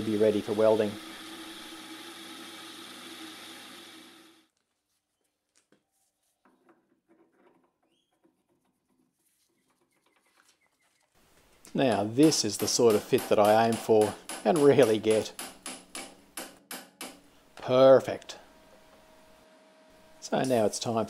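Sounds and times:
metal lathe motor humming: 0.0 - 4.4.

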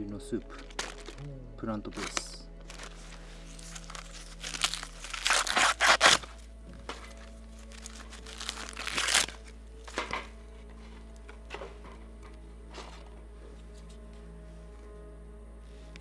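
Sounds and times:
noodle packaging crinkling: 0.4 - 1.2, 1.9 - 10.4.

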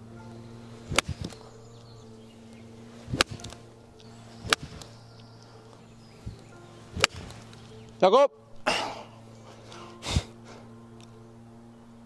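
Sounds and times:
golf club striking ball: 0.0 - 8.6
background music: 0.0 - 12.0.

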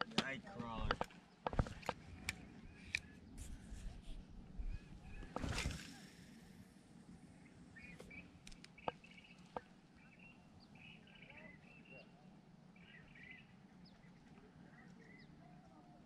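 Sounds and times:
sharp clicks: 0.0 - 3.2, 8.0 - 9.7
faint birdsong chirping: 0.0 - 16.0.

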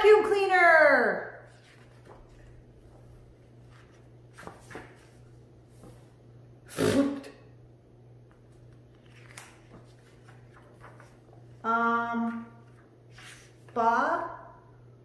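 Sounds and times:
faint steady hum: 0.0 - 15.0
book pages rustling: 1.5 - 6.2, 8.3 - 11.6, 12.4 - 13.8
person making spluttering mouth noise: 6.7 - 7.4.

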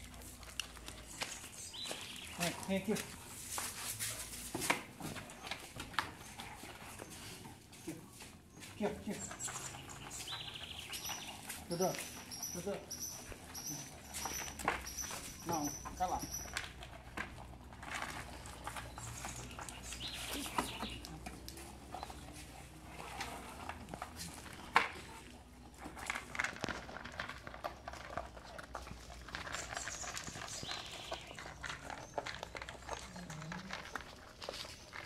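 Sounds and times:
puppies crunching dry food: 0.0 - 35.0.

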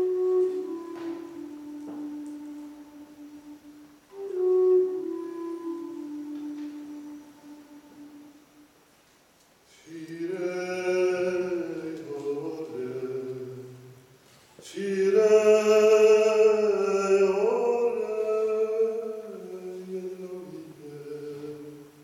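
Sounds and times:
man singing unaccompanied: 9.7 - 22.0.

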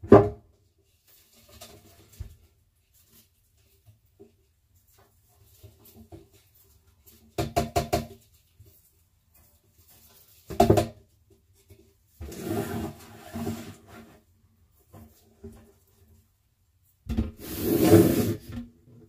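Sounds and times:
rubbing scraping noise: 12.2 - 14.3, 17.4 - 18.6.

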